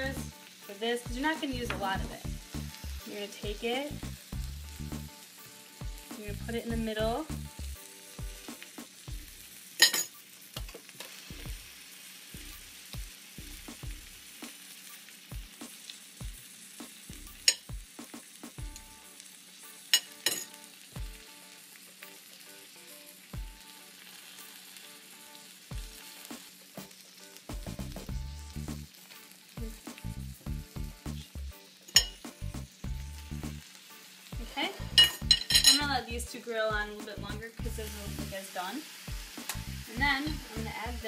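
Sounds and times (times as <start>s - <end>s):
pears sizzling on a panini press: 0.0s - 41.0s
metal spoon clinking on plate: 9.8s - 10.1s, 20.0s - 20.6s, 31.9s - 32.2s, 35.0s - 35.8s.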